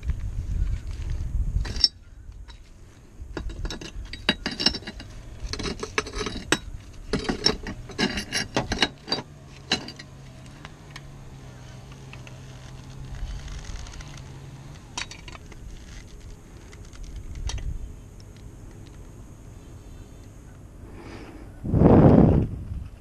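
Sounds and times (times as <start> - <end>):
low steady hum: 0.0 - 23.0
sheet metal clinking and scraping: 1.6 - 2.7, 3.3 - 10.4.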